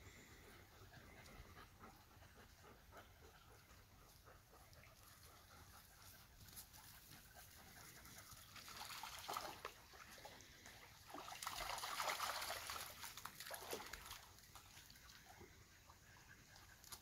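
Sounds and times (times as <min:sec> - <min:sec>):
dog splashing through water: 0:08.5 - 0:10.3, 0:11.1 - 0:15.3.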